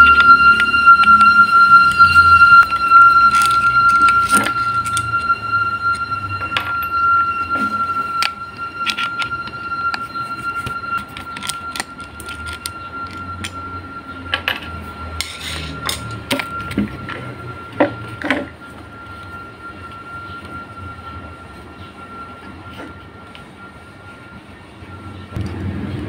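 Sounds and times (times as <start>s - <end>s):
steady high tone: 0.0s - 26.0s
low rumble: 24.8s - 26.0s.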